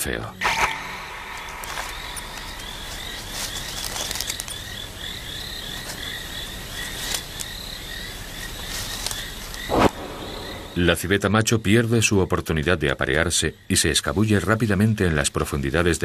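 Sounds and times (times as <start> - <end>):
soft hiss: 0.4 - 11.5.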